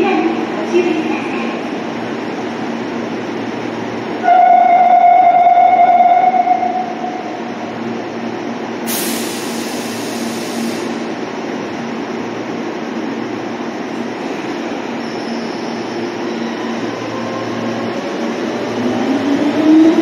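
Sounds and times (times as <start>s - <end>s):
subway train rumble: 0.0s - 20.0s
train horn note: 4.2s - 7.2s
compressed air hiss: 8.9s - 11.0s.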